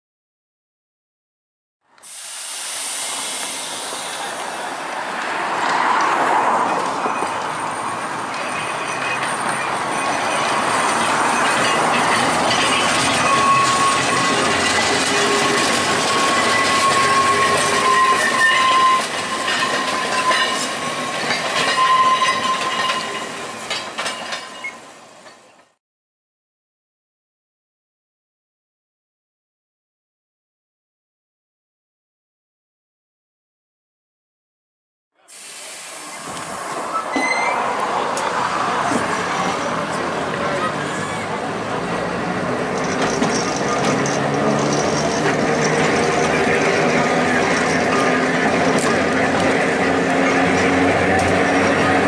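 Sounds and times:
tram passing on track: 1.9 - 25.8, 35.2 - 52.0
wheels squealing thinly: 3.4 - 25.0, 35.3 - 52.0
wheels clicking over rail joints: 4.9 - 25.7, 36.3 - 52.0.

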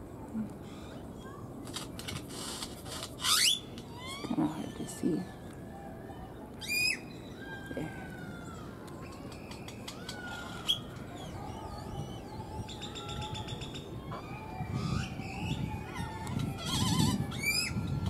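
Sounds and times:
bird whistling calls: 3.2 - 5.3, 6.6 - 7.8, 8.5 - 17.9.

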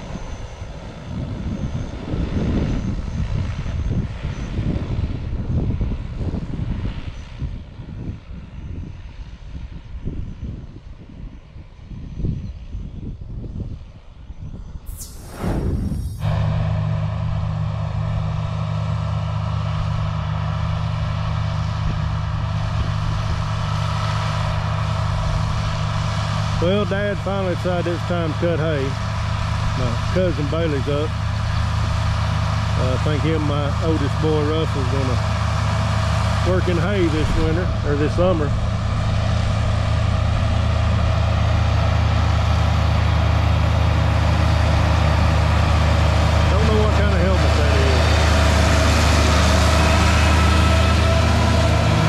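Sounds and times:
tractor engine running: 14.9 - 52.0.

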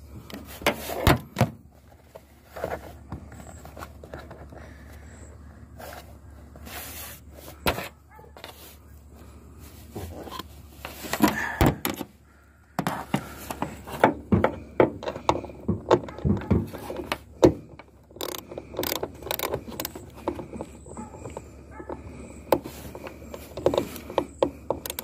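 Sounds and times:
tools knocking and rattling: 12.8 - 25.0.

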